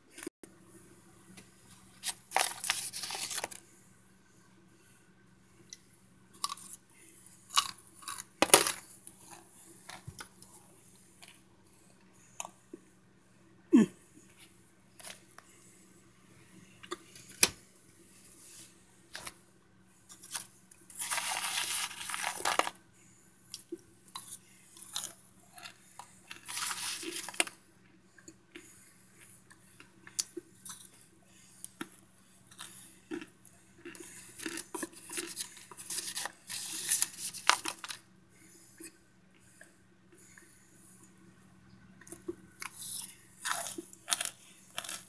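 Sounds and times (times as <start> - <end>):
crunching and chewing: 1.7 - 3.6, 5.7 - 11.4, 14.3 - 15.6, 20.0 - 22.8, 23.5 - 27.6, 28.2 - 38.1, 42.0 - 45.0.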